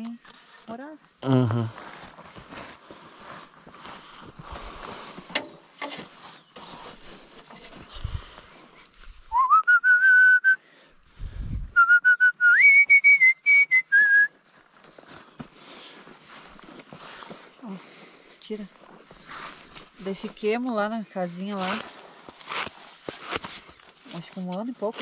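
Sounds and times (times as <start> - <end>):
person whistling: 9.3 - 10.6, 11.7 - 14.4
soft rustling: 14.5 - 25.0.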